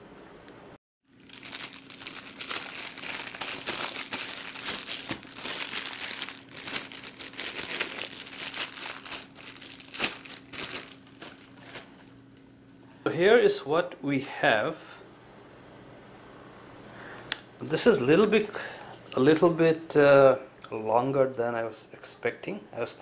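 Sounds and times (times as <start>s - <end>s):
plastic bag crinkling: 1.1s - 12.1s.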